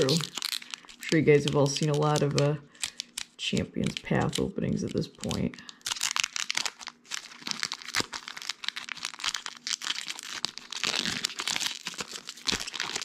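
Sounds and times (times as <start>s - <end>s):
foil wrapper crinkling and tearing: 0.0s - 13.0s.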